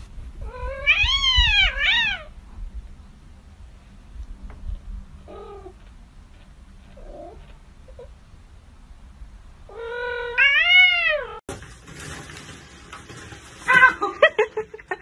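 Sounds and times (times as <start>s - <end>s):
cat meowing: 0.4s - 2.3s, 9.7s - 11.4s.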